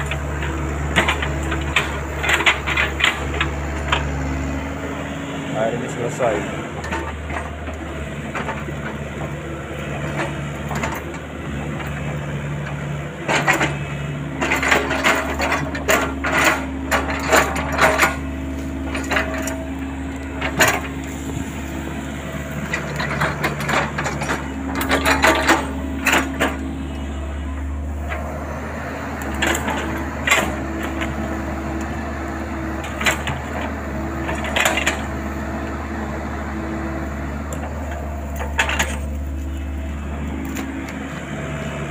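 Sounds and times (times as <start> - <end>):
excavator diesel engine running: 0.0 - 41.9
branches cracking and knocking: 37.5 - 41.4.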